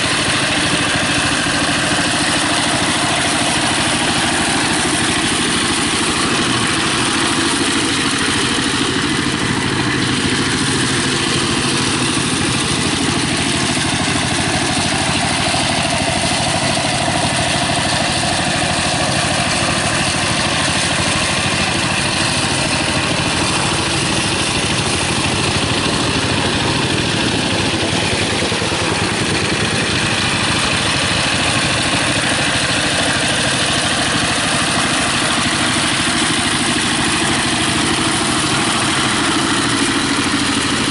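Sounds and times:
diesel engine running under load: 0:00.0 - 0:40.9.

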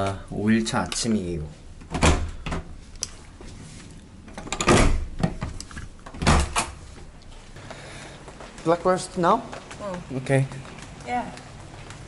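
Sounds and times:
door thumping shut: 0:04.6 - 0:06.8.

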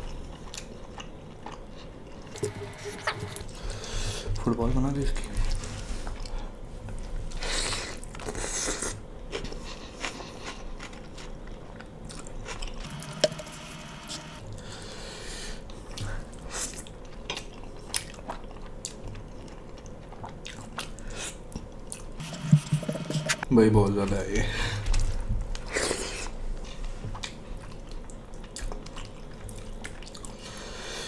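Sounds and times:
wet chewing and lip smacking: 0:25.5 - 0:30.4.

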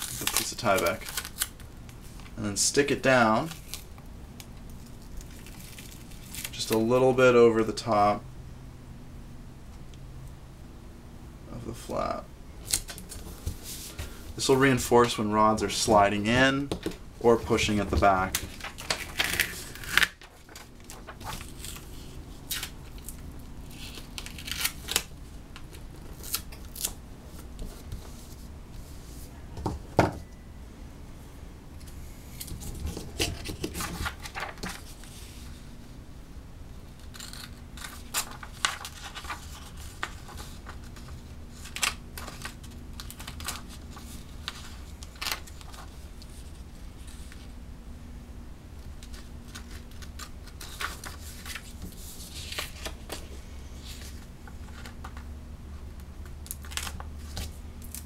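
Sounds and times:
plastic sheet crinkling: 0:00.0 - 0:02.3, 0:17.4 - 0:25.1, 0:32.6 - 0:35.2, 0:37.0 - 0:46.2.

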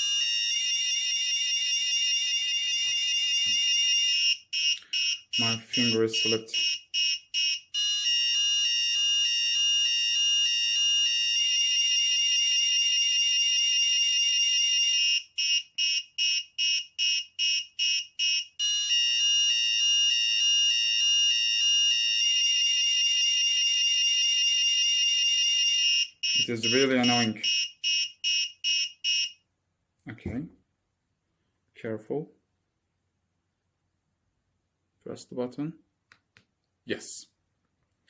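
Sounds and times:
high-pitched warbling alarm buzzer: 0:00.0 - 0:29.4
rapid alarm beeps: 0:01.8 - 0:19.1, 0:25.5 - 0:29.4.

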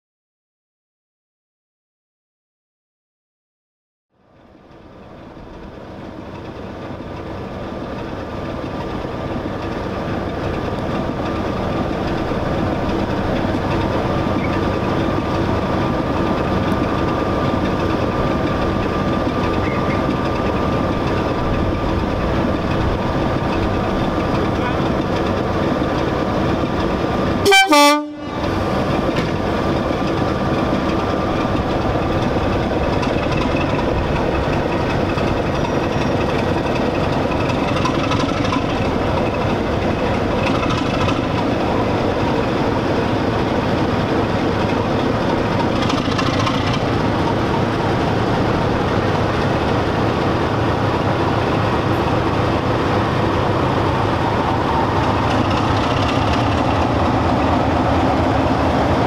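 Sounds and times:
diesel locomotive engine running: 0:04.2 - 0:59.0
loud horn blast: 0:27.4 - 0:28.4.

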